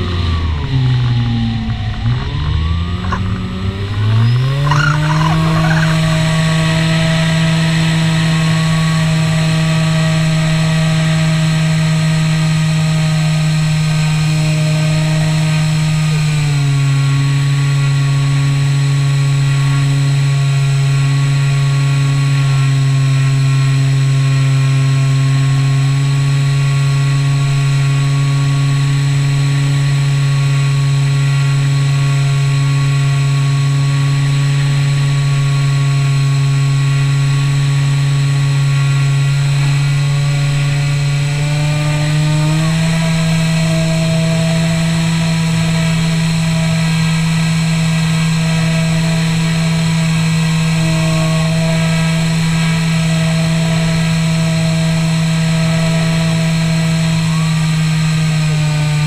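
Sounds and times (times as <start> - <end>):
model plane motor droning: 0.0 - 10.8.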